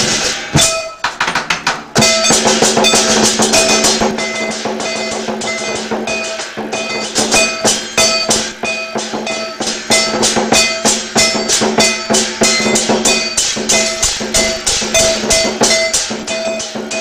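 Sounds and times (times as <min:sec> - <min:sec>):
cymbals crashing: 0:00.0 - 0:01.2, 0:01.9 - 0:17.0
drum beating: 0:00.0 - 0:17.0
gong strikes: 0:02.0 - 0:17.0.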